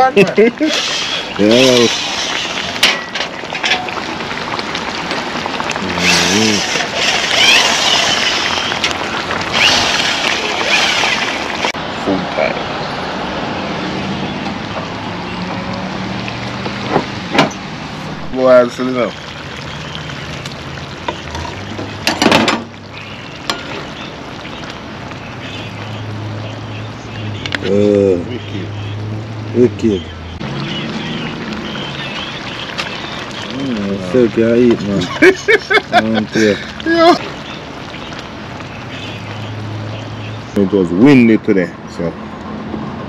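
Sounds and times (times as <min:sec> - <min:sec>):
fish sizzling in a frying pan: 0:00.0 - 0:11.8, 0:18.3 - 0:29.0, 0:30.4 - 0:40.6
vehicle noise hum: 0:00.0 - 0:36.0, 0:36.6 - 0:43.0.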